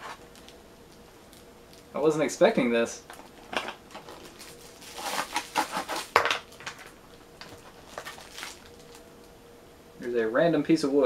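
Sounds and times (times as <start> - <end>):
packaging rustling and crinkling: 0.0 - 2.0, 3.1 - 9.3.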